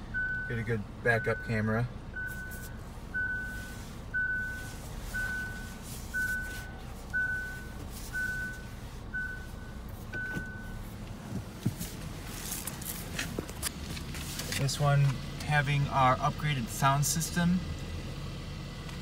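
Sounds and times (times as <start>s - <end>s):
low steady hum: 0.0s - 17.0s
reverse warning beeps: 0.1s - 10.9s.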